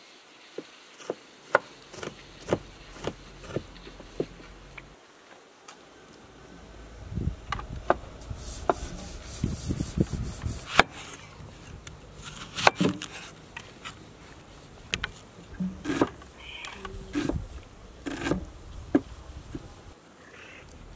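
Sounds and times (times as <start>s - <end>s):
cat rolling on gravelly dirt: 0.0s - 8.5s
knife cutting onion on board: 1.0s - 4.4s.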